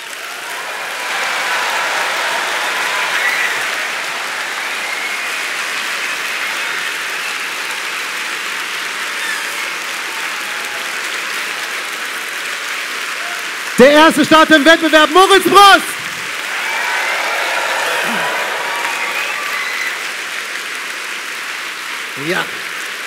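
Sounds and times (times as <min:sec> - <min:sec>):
faint whoops: 0:00.0 - 0:07.8, 0:16.3 - 0:20.4
audience applauding: 0:00.0 - 0:23.0.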